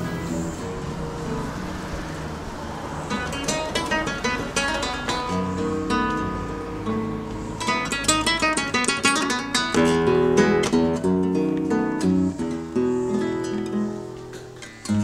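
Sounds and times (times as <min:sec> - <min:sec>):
flamenco guitar: 0:00.0 - 0:15.0.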